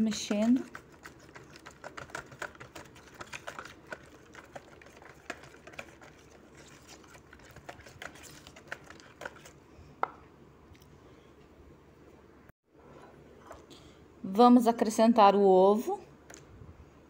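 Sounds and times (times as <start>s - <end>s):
whisk clicking against plastic bowl: 0.0s - 6.3s.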